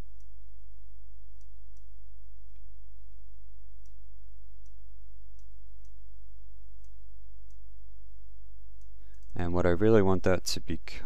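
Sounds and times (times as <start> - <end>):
low electrical hum: 0.0 - 11.0
computer mouse clicking: 8.8 - 9.4.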